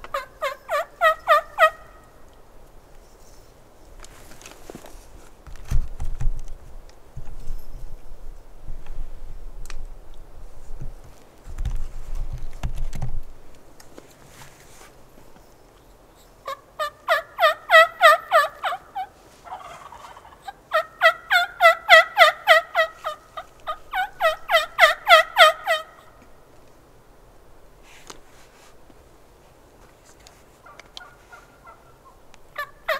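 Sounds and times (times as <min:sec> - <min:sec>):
wild turkey yelping: 0:00.0 - 0:02.2, 0:16.4 - 0:26.2, 0:30.6 - 0:32.9.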